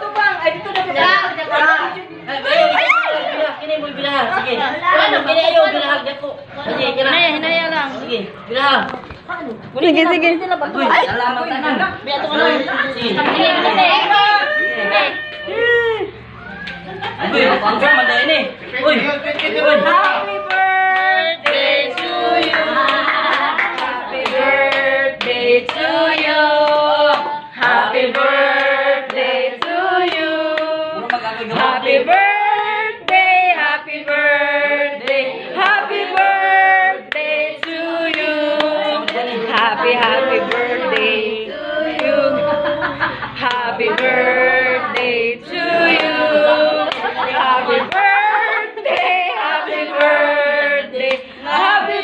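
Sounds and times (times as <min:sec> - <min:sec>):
person singing: 0:19.7 - 0:52.0.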